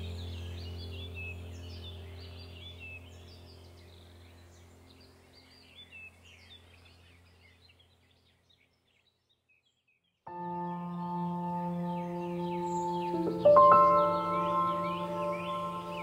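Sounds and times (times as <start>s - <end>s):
low steady drone: 0.0s - 6.4s, 10.3s - 16.0s
bird chirps: 0.0s - 16.0s.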